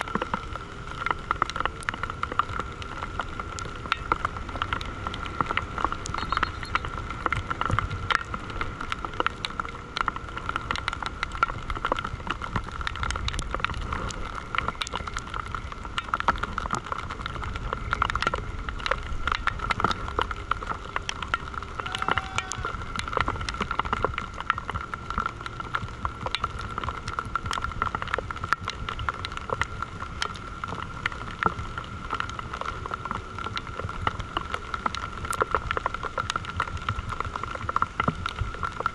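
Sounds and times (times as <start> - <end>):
high whine: 6.1 - 7.0.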